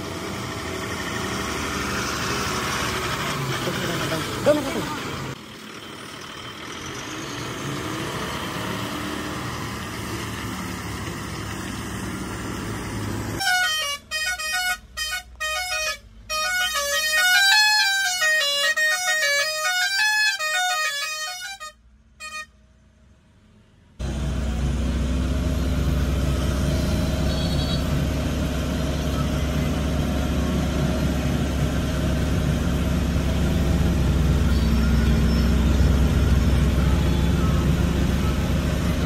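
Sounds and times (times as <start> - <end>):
engine noise: 0.0 - 18.0, 22.8 - 39.0
musical vehicle horn tune: 13.4 - 22.6, 27.0 - 28.0.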